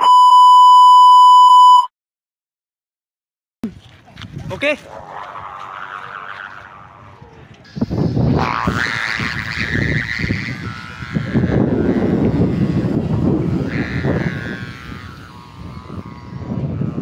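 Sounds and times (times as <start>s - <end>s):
kite hummer buzzing: 3.6s - 17.0s
wind rumble on microphone: 3.6s - 17.0s.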